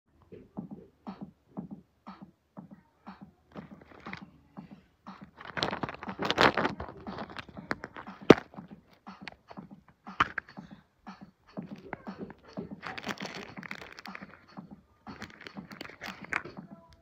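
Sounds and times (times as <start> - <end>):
plastic bag crinkling: 3.8 - 4.2, 5.3 - 8.5, 11.7 - 16.6.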